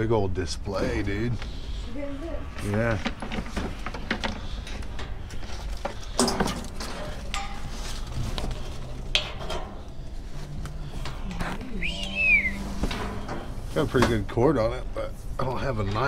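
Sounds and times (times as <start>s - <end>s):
objects clattering in dumpster: 2.7s - 14.6s.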